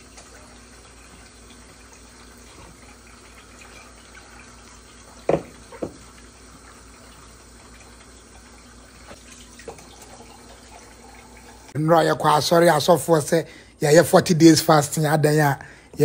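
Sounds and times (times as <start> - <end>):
dough thudding against bowl: 5.3 - 6.0.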